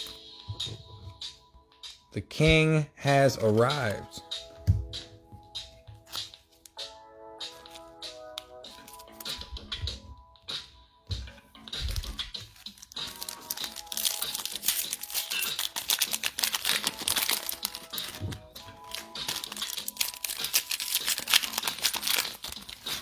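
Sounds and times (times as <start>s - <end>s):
background music: 0.0s - 23.0s
wrapper crinkling: 12.4s - 23.0s.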